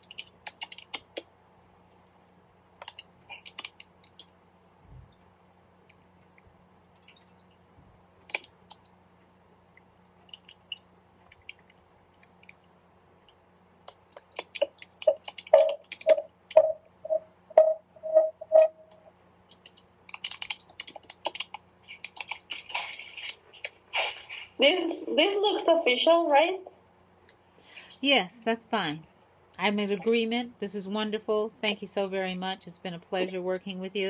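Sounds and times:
typing on computer keyboard: 0:00.0 - 0:01.3, 0:02.8 - 0:04.3, 0:13.2 - 0:16.8, 0:19.5 - 0:23.7.

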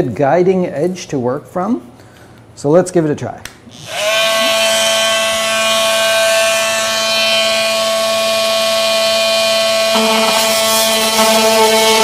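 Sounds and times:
electric edge cutter whining: 0:03.7 - 0:12.0.

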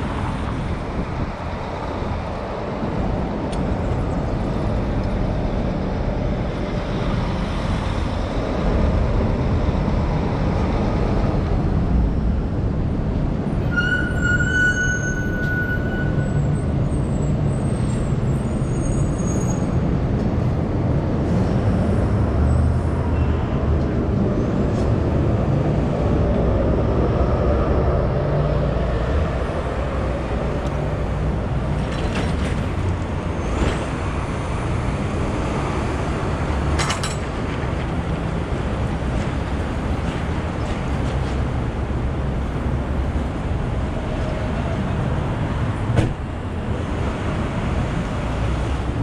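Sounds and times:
passing traffic rumble: 0:00.0 - 0:49.0.

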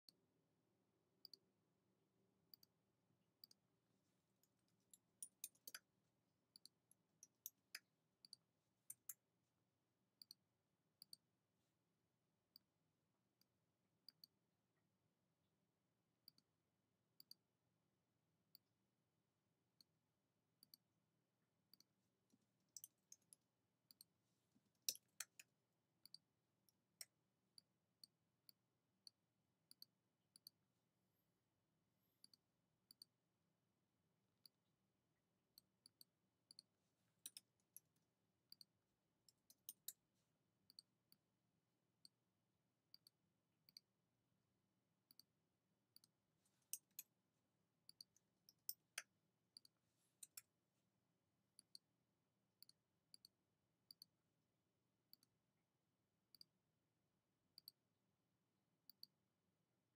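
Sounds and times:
computer mouse clicks: 0:04.9 - 0:05.9.

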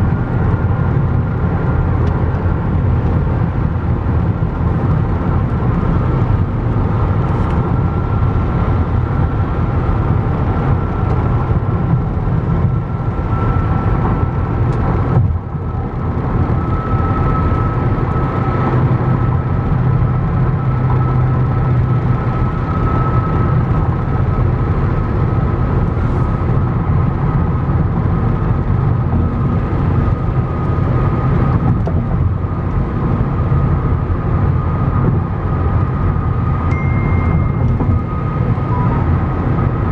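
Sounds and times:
car road and engine noise: 0:00.0 - 0:39.9
thin high whine: 0:36.7 - 0:39.9.

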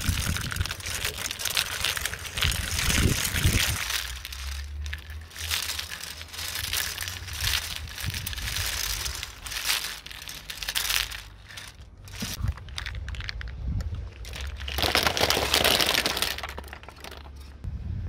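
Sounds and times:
nuts scooped into wire cage: 0:00.0 - 0:13.6.

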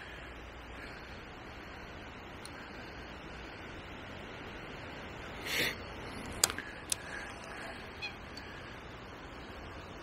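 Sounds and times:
outdoor background hiss: 0:00.0 - 0:10.0
short sniff: 0:05.4 - 0:05.8
sharp clicks: 0:06.2 - 0:07.5.

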